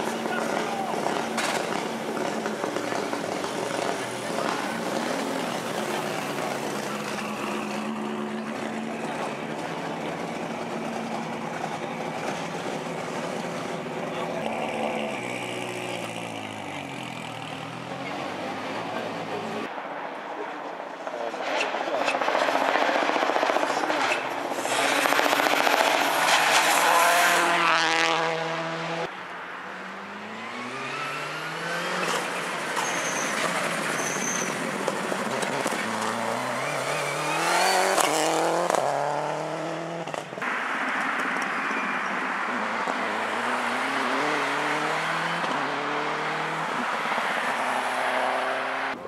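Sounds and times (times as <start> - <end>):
cars accelerating through gears: 0.0 - 19.7, 22.1 - 29.1, 29.8 - 40.2, 41.2 - 49.0
rally car engines at full throttle: 0.0 - 49.0
car passing loudly: 21.3 - 49.0.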